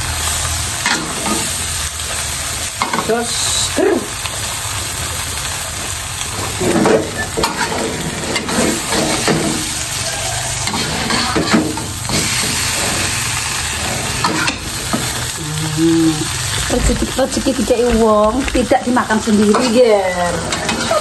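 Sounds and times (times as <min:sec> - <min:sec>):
food sizzling in a wok: 0:00.0 - 0:21.0
metal spatula scraping a pan: 0:06.3 - 0:15.4, 0:16.3 - 0:21.0.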